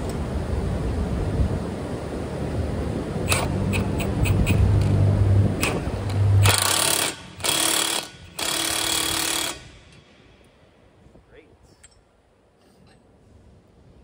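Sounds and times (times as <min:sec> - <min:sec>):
impact wrench droning: 0:03.2 - 0:05.0, 0:05.6 - 0:10.0
impact wrench hammering: 0:05.6 - 0:10.0.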